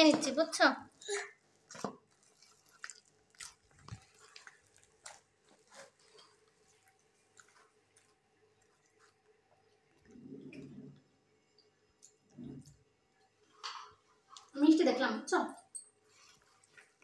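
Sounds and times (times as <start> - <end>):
faint soft clicks and squelches: 1.6 - 14.6.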